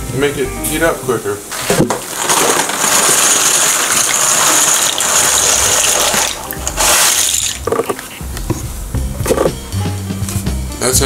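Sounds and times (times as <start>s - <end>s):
dry pasta rattling into a pot: 2.0s - 7.6s.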